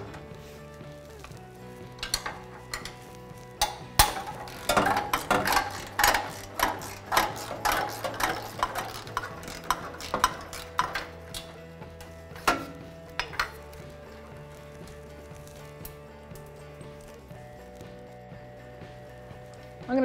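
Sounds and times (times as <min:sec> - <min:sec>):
wrenches clinking on metal bolt: 0:02.0 - 0:13.7.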